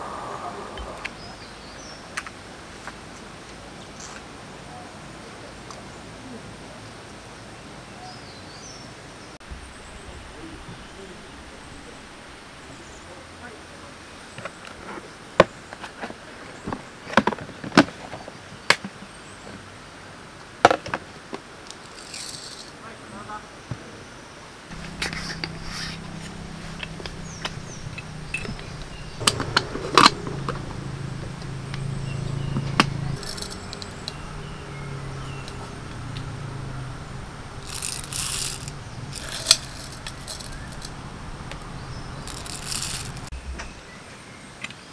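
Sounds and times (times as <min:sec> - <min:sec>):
low hum: 0:00.0 - 0:01.8, 0:09.4 - 0:14.2, 0:24.7 - 0:44.5
outdoor ambient hiss: 0:00.0 - 0:44.9
coffee grinder parts knocking: 0:32.6 - 0:34.3, 0:37.6 - 0:41.6, 0:42.2 - 0:43.3.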